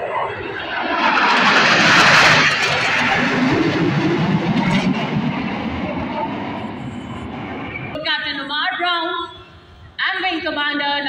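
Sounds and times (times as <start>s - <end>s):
fighter jet flying overhead: 0.0s - 8.0s.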